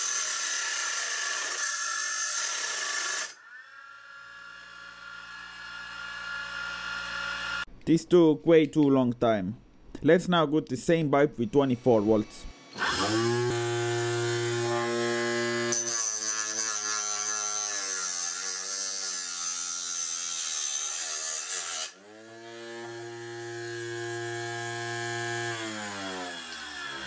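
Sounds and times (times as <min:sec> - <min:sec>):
cutting disc grinding metal pipe: 0:00.0 - 0:07.7, 0:12.4 - 0:27.0
electric motor whine: 0:12.6 - 0:15.9, 0:22.0 - 0:27.0.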